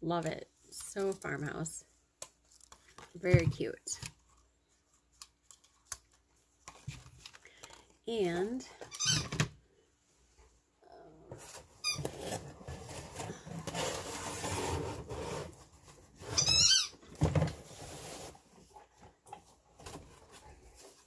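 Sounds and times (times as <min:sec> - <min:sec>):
items rustling: 0:00.0 - 0:09.6, 0:11.2 - 0:21.0
dog toy squeaks: 0:16.4 - 0:17.0.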